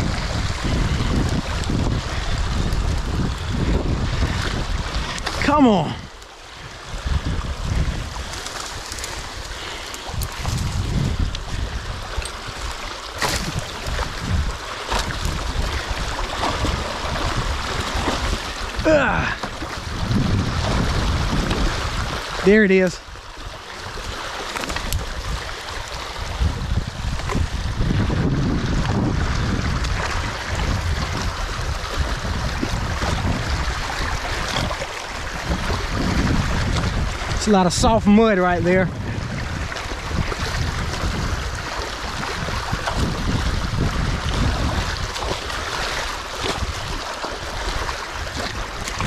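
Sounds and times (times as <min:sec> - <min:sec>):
water rushing through dam breach: 0:00.0 - 0:49.0
short falling grunt: 0:18.8 - 0:19.4.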